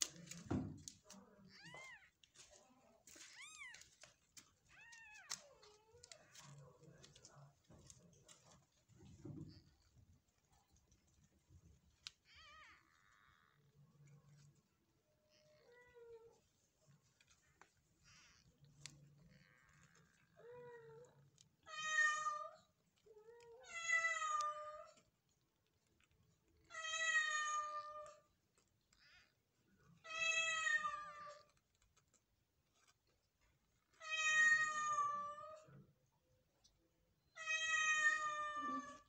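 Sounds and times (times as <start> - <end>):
faint low kitten squeaks: 12.2 - 13.8.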